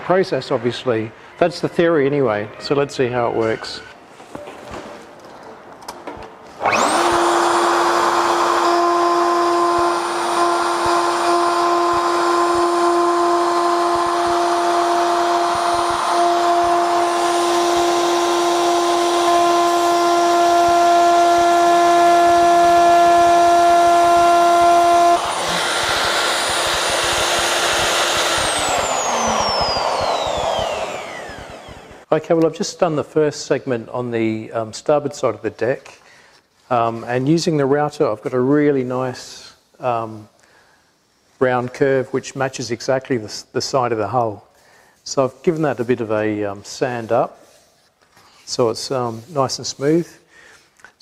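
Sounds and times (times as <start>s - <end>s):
router whining: 6.6s - 32.1s.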